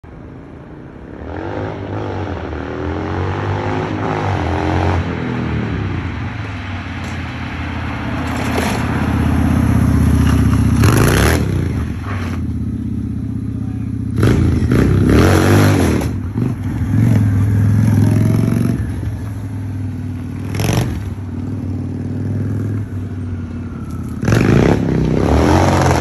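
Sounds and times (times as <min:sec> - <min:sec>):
kart engine revving: 0:08.2 - 0:12.6, 0:13.2 - 0:26.0.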